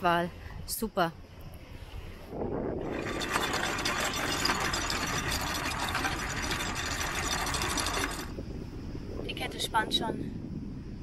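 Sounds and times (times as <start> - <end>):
anchor chain rattling: 2.8 - 8.4.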